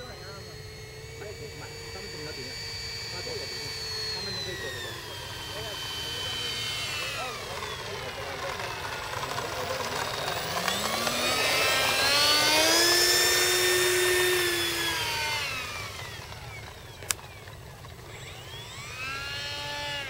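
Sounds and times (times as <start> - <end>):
electric ducted fan whining: 0.0 - 20.0
sharp click: 17.0 - 17.2.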